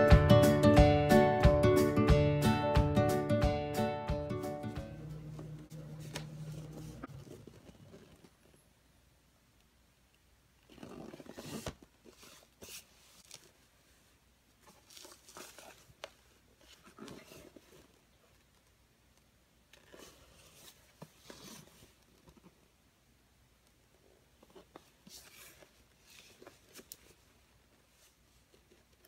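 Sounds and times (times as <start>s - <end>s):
cardboard scraping and rustling: 5.9s - 8.4s, 10.7s - 13.6s, 19.8s - 22.5s, 24.4s - 29.0s.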